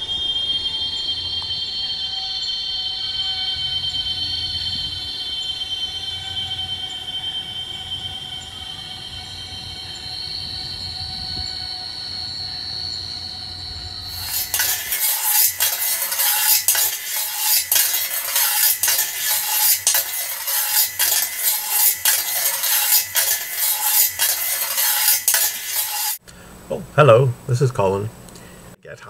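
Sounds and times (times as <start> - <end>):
drone of held tones: 0.0 - 25.6
blade scraping metal tray: 14.1 - 26.2.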